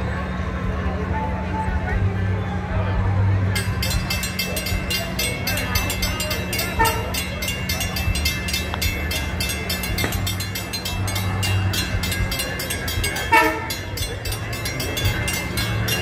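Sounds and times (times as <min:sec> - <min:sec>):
diesel train engine drone: 0:00.0 - 0:16.0
train horn blast: 0:06.7 - 0:07.2, 0:13.2 - 0:13.9.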